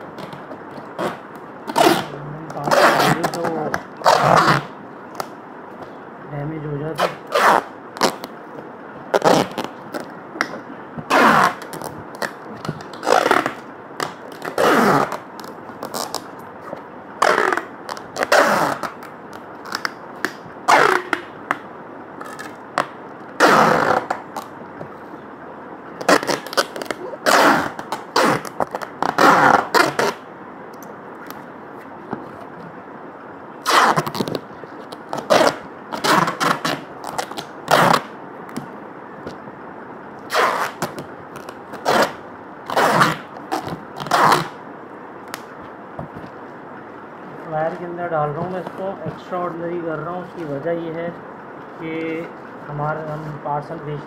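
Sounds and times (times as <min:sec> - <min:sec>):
packing tape ripping: 0:00.2 - 0:05.3, 0:07.0 - 0:08.3, 0:09.1 - 0:16.4, 0:17.2 - 0:21.6, 0:22.2 - 0:24.5, 0:26.0 - 0:30.2, 0:33.6 - 0:39.4, 0:40.3 - 0:44.6.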